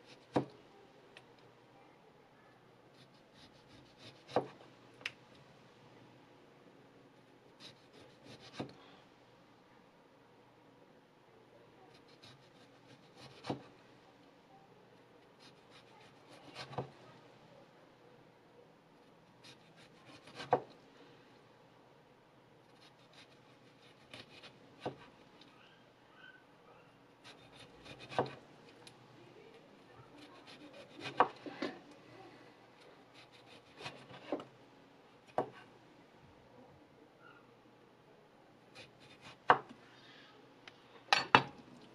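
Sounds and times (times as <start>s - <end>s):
knife slicing orange: 3.0s - 4.6s, 7.6s - 8.8s, 11.9s - 13.7s, 15.4s - 17.0s, 19.4s - 20.7s, 27.2s - 28.9s, 30.2s - 31.8s, 33.1s - 34.5s.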